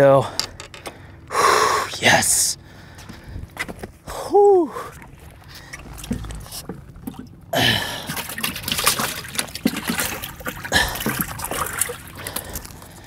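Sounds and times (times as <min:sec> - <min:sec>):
water splashing and trickling: 0:04.7 - 0:13.0.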